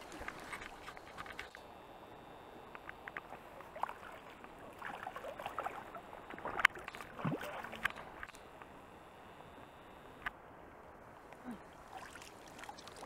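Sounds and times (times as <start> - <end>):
fish splashing in water: 3.4 - 8.4, 11.8 - 13.0.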